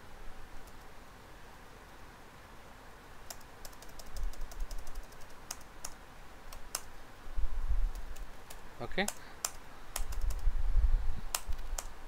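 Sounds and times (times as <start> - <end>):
computer keyboard keystrokes: 3.3 - 6.9, 7.9 - 10.5, 11.3 - 11.9.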